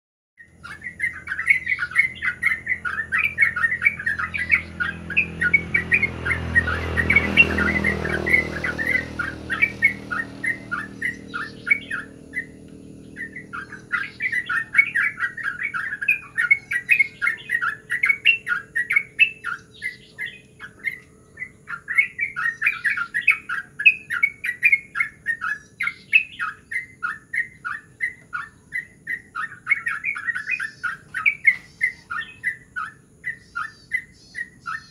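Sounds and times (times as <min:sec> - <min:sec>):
bird singing rolling song: 0:00.4 - 0:34.9
low droning hum: 0:00.5 - 0:17.9.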